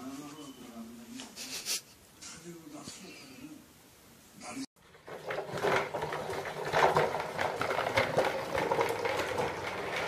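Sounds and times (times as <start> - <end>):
toy wheels rattling on tile: 4.8 - 10.0.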